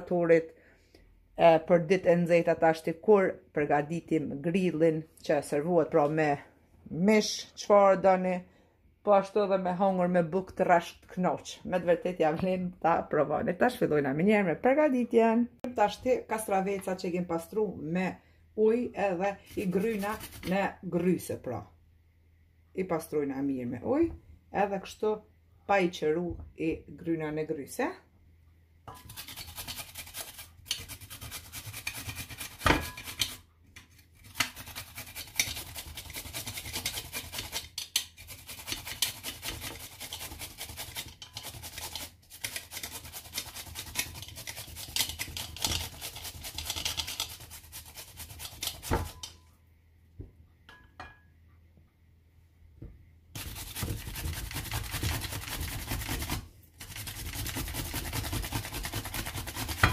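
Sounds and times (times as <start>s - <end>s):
cucumber grated on metal grater: 19.5s - 20.7s, 28.9s - 49.3s, 53.4s - 59.9s.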